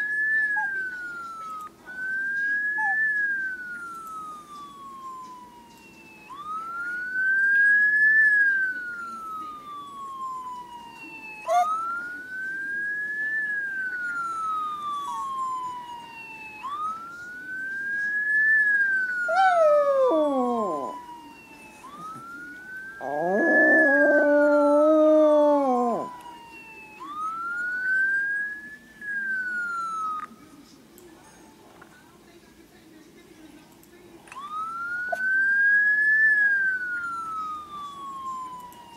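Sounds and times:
siren wailing: 0.0s - 30.4s, 34.3s - 38.9s
small dog howling: 19.2s - 21.2s, 23.0s - 26.4s.

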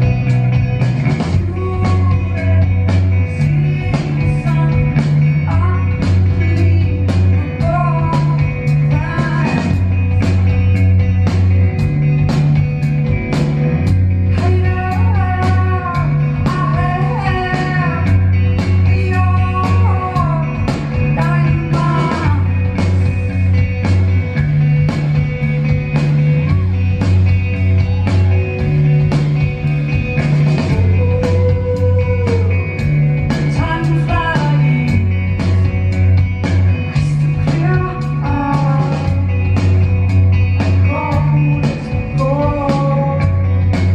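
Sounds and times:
electric guitar: 0.0s - 43.9s
steady drums: 0.0s - 43.9s
woman singing: 1.3s - 10.2s, 14.2s - 22.8s, 30.7s - 35.4s, 36.9s - 39.5s, 40.6s - 43.9s.

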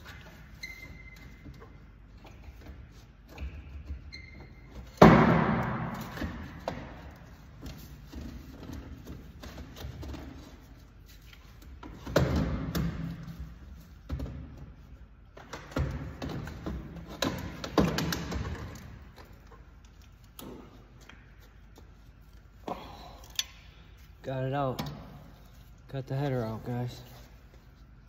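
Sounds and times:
loud metal bangs with rattle: 4.9s - 6.7s.

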